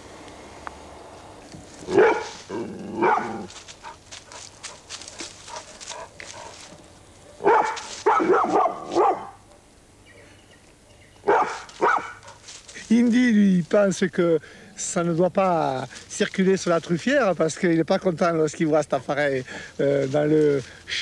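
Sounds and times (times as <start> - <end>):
young dog barking: 1.8 - 6.6, 7.2 - 9.7, 10.8 - 12.4.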